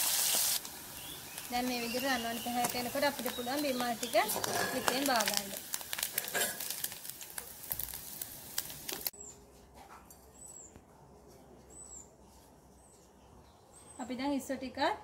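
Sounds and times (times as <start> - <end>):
onions sizzling in oil: 0.0 - 9.1.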